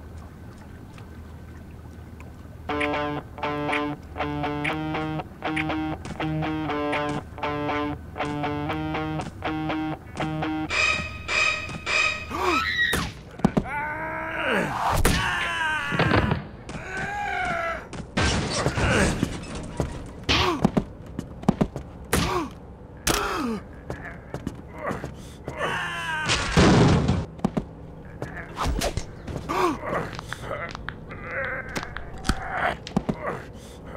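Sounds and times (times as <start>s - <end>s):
men grunting and groaning: 13.3s - 16.0s, 29.5s - 33.6s.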